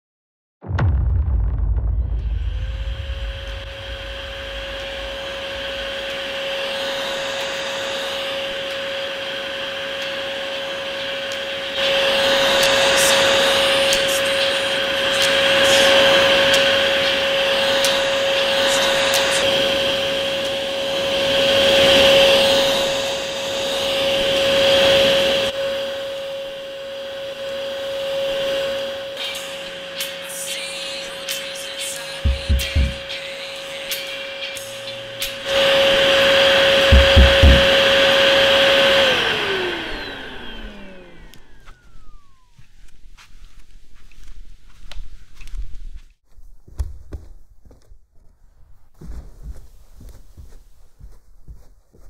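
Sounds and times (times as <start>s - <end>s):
vacuum cleaner running: 3.5s - 43.3s.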